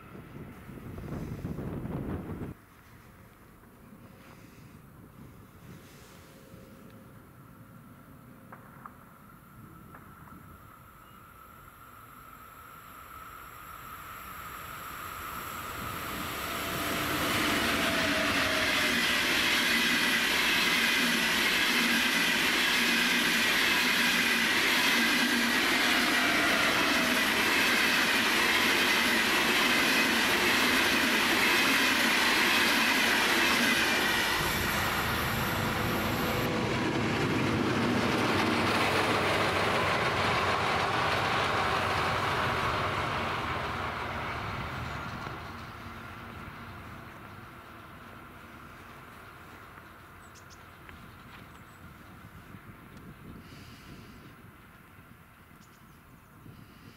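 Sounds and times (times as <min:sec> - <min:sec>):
diesel locomotive drone: 0:00.0 - 0:56.9
train wheels rumbling on rails: 0:13.1 - 0:55.0.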